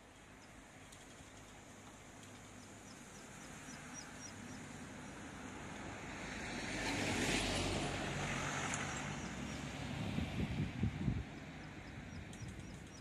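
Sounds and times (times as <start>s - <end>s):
vehicle passing by: 3.5s - 12.3s.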